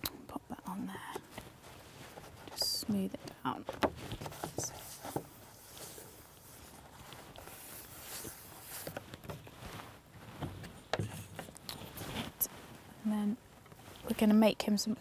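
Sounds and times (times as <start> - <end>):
hands rustling paper and card: 0.9 - 12.8.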